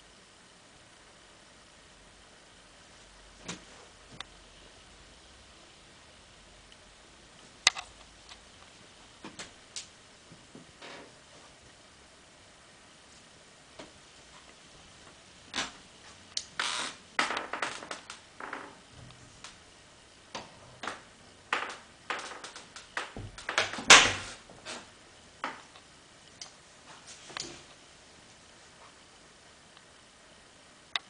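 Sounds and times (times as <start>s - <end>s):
clicks and knocks in tiled room: 9.2s - 11.2s, 17.2s - 19.6s, 20.3s - 27.7s.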